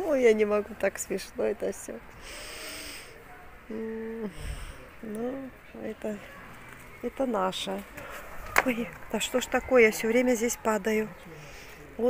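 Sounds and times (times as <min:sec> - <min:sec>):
woman humming: 0:03.7 - 0:05.5.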